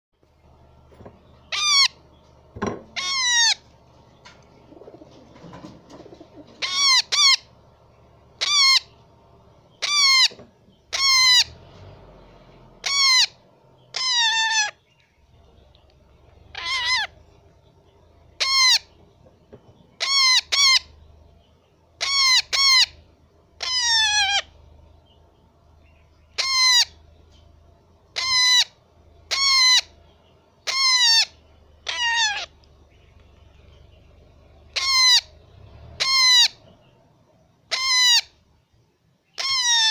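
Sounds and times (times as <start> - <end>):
parakeet chick calling: 1.2 - 2.3, 2.9 - 11.6, 12.8 - 21.2, 22.0 - 23.0, 23.6 - 25.2, 25.8 - 27.1, 28.1 - 35.4, 36.0 - 36.9, 37.7 - 38.4, 39.2 - 39.9.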